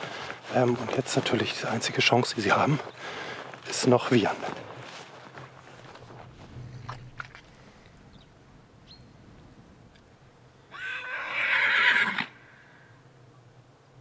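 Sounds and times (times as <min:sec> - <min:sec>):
horse whinnying: 0:10.7 - 0:12.6.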